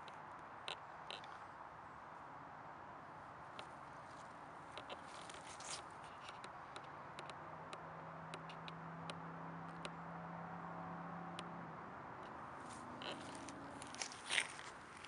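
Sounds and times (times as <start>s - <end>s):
footsteps on dry leaves: 5.0s - 5.9s, 12.6s - 15.0s.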